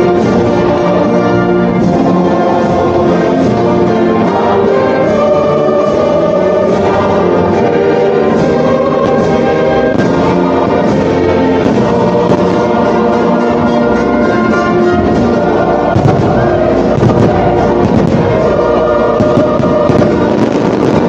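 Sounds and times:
orchestral music with brass and choir: 0.0 - 21.0.

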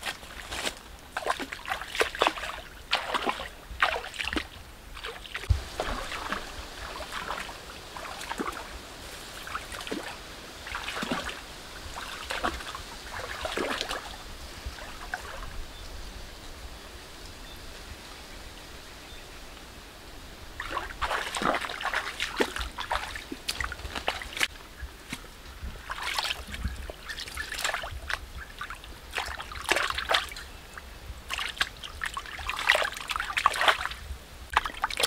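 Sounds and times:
footsteps through leafy undergrowth: 0.0 - 1.5
footsteps splashing through stream: 0.0 - 15.5, 20.6 - 30.6, 31.2 - 35.0
stream trickling: 0.0 - 35.0.

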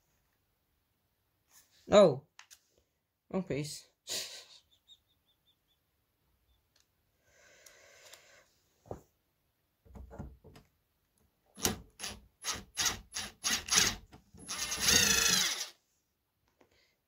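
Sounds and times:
cordless drill driving screw: 11.6 - 15.8.

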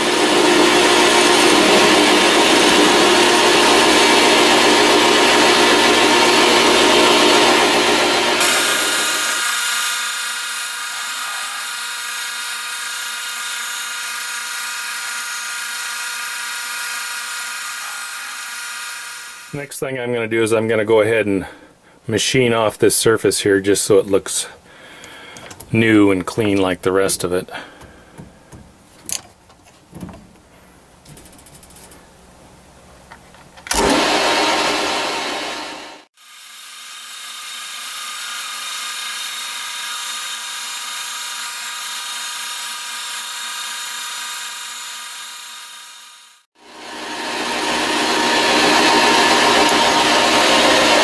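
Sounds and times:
metal lathe motor whine: 0.0 - 19.5, 33.7 - 51.0.

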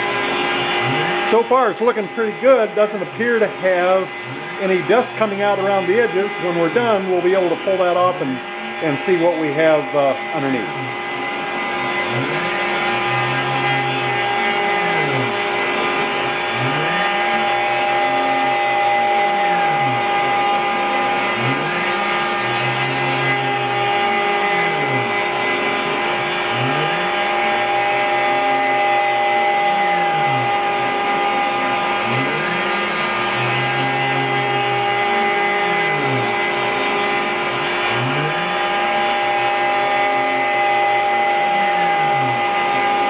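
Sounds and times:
dust collector drawing air: 0.0 - 43.0
low motor tone rising and falling: 0.0 - 43.0
router spindle whining: 0.0 - 43.0.

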